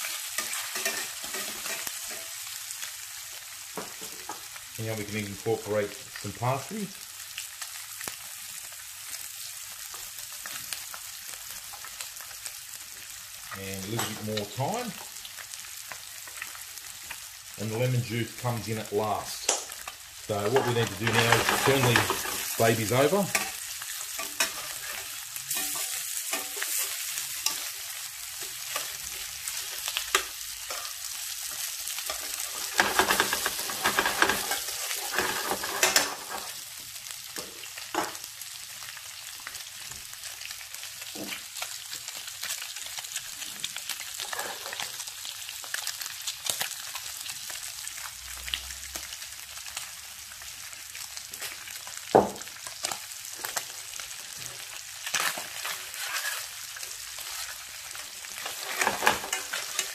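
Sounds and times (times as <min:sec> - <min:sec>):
metal tongs scraping pan: 0:00.0 - 0:02.5, 0:20.3 - 0:28.0, 0:28.6 - 0:36.6, 0:44.2 - 0:44.8, 0:55.1 - 0:59.9
food sizzling in hot oil: 0:00.0 - 0:59.9.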